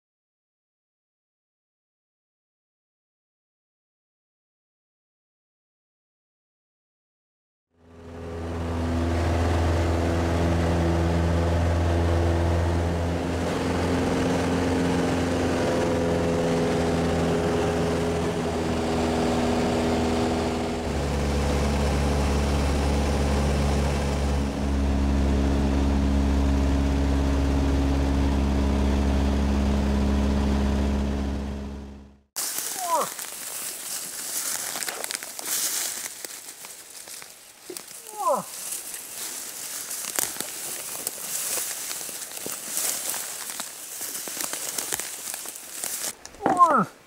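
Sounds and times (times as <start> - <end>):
propeller plane engine droning: 7.8 - 46.7.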